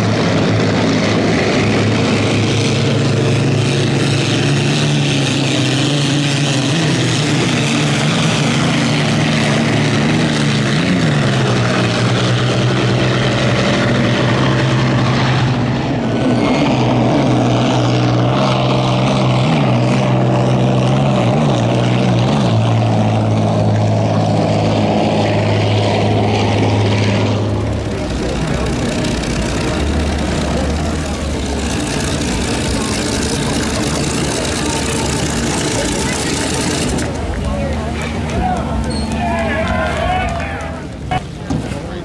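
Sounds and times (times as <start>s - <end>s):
racing boat engines drone: 0.0s - 42.0s.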